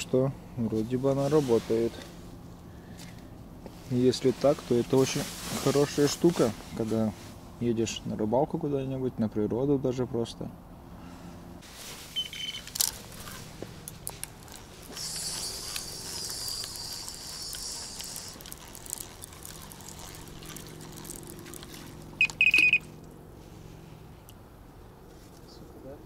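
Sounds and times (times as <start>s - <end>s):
handling clicks and rustling: 11.6s - 23.2s
steady high hiss: 14.3s - 22.6s
high-pitched beeping: 22.2s - 22.9s.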